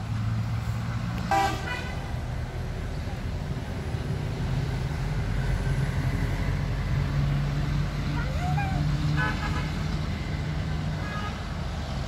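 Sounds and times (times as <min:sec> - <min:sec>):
vehicle engine humming: 0:00.0 - 0:12.0
car horn toot: 0:01.3 - 0:02.0.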